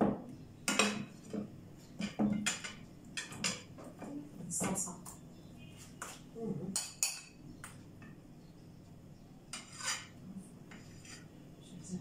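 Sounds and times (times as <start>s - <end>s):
metal spoon scraping metal pan: 9.5s - 11.4s.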